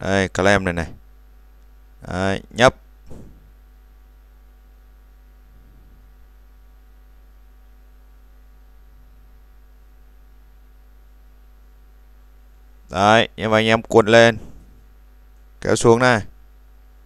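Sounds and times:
electrical mains hum: 0:00.0 - 0:17.0
faint hiss: 0:13.9 - 0:15.0.

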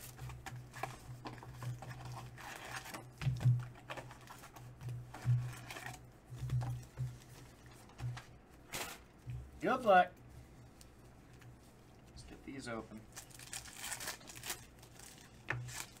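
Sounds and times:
handling knocks and crackles: 0:00.0 - 0:09.9
foil packs rustling: 0:00.0 - 0:10.1, 0:12.2 - 0:16.0
plastic wrap crinkling: 0:00.0 - 0:16.0.

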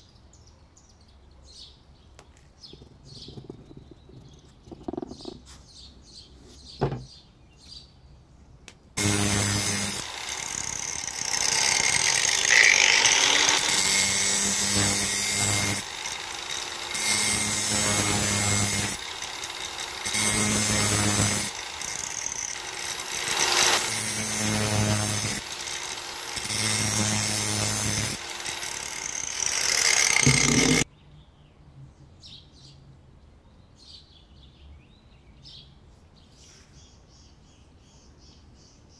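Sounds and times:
angle grinder grinding metal: 0:09.0 - 0:30.9.

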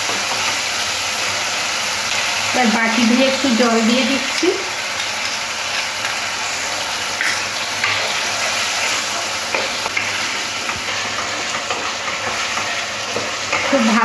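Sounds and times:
vegetables sizzling in a wok: 0:00.0 - 0:14.0
wooden spatula scraping wok: 0:07.2 - 0:14.0.

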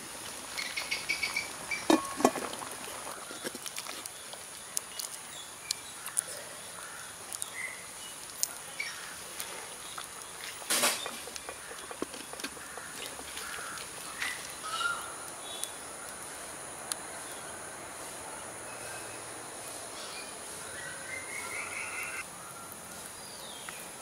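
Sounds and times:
wood fire crackling: 0:00.0 - 0:21.4
birds chirping: 0:00.5 - 0:02.2, 0:03.1 - 0:24.0
insect drone: 0:12.4 - 0:22.2.

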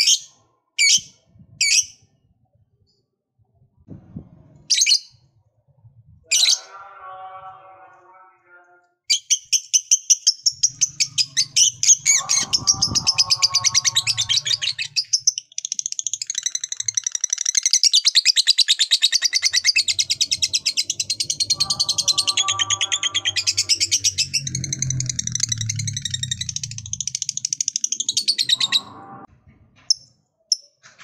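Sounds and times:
low warbling bird note: 0:11.2 - 0:14.9, 0:19.9 - 0:27.2.

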